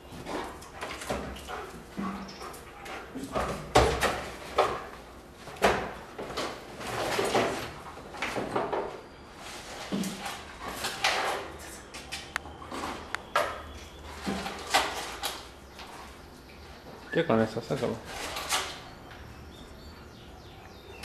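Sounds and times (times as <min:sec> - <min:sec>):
objects knocking and clattering: 0:03.1 - 0:09.0.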